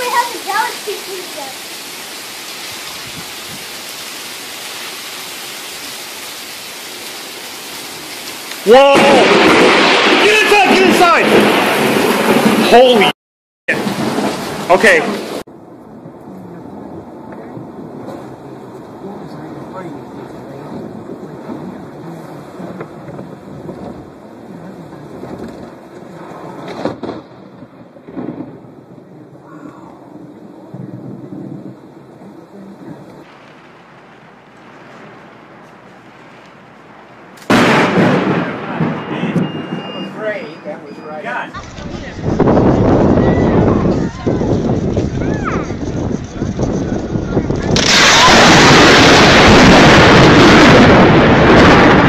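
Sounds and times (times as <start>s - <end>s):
thunder rumbling: 0.0s - 13.1s, 13.7s - 40.4s, 41.5s - 52.0s
heavy rain pouring: 0.0s - 52.0s
sharp thunder crack: 8.6s - 13.1s, 13.7s - 15.5s, 16.9s - 24.2s, 25.0s - 32.3s, 33.2s - 40.2s, 41.6s - 52.0s.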